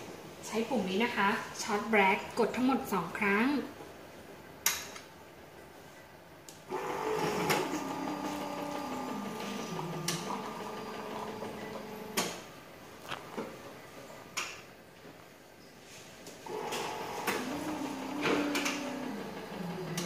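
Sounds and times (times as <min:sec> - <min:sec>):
coffee machine pump humming: 0:06.7 - 0:13.4, 0:16.5 - 0:20.0.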